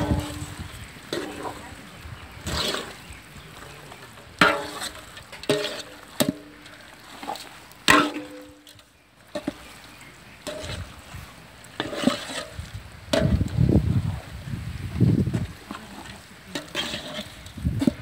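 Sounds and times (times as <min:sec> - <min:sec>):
metal ladle knocking and scraping pot: 0:00.0 - 0:01.6, 0:02.4 - 0:09.7, 0:10.4 - 0:11.0, 0:11.8 - 0:13.6, 0:15.3 - 0:18.0
metal pot ringing: 0:07.9 - 0:08.8.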